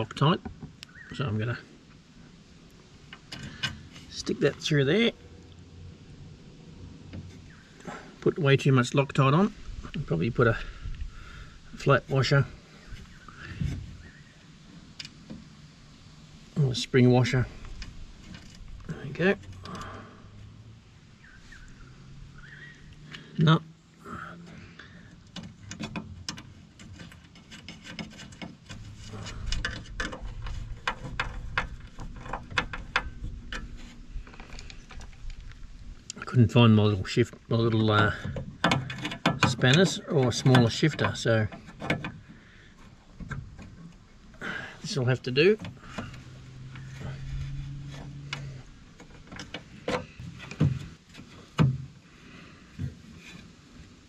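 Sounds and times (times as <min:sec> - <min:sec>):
metal parts clicking and scraping: 0:25.2 - 0:36.1, 0:37.9 - 0:42.2.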